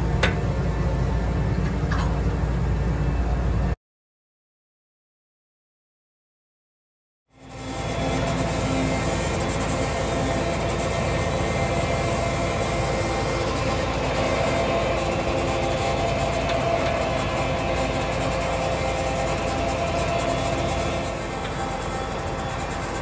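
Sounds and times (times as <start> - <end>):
tractor engine drone: 0.0 - 3.8, 7.3 - 23.0
constant rushing noise: 7.4 - 23.0
held tones: 7.6 - 23.0
plow dragging through soil: 7.7 - 23.0.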